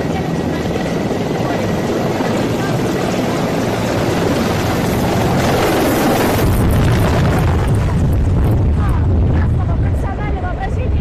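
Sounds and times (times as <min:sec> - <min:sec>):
helicopters passing low: 0:00.0 - 0:11.0
rotor downwash buffeting microphone: 0:00.0 - 0:11.0.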